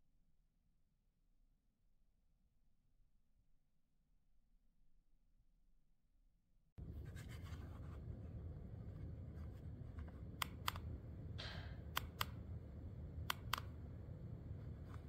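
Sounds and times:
ceiling fan humming: 6.8s - 15.0s
sharp clicks: 10.3s - 12.6s, 13.2s - 13.9s.

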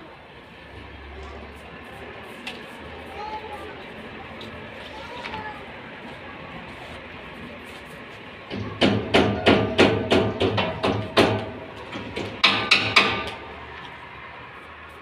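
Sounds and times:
hammer striking metal: 8.5s - 13.4s.

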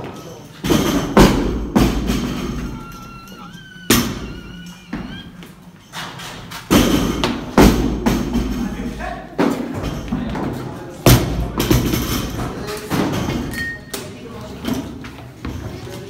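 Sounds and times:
barbells thudding on floor: 0.6s - 3.0s, 3.8s - 5.1s, 6.7s - 8.7s.

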